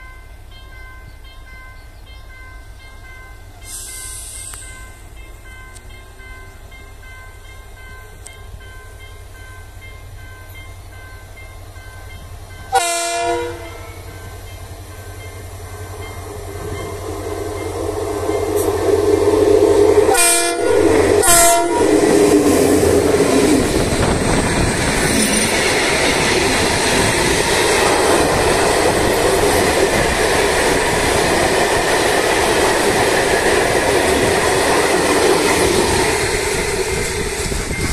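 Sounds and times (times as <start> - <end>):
diesel locomotive engine: 0.0 - 37.9
train horn blasts: 12.7 - 14.2, 20.0 - 22.6.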